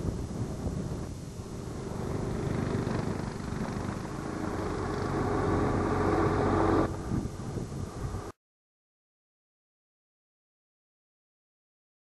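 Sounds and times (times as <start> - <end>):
wind noise on microphone: 0.0 - 8.4
motorcycle engine running: 1.4 - 8.3.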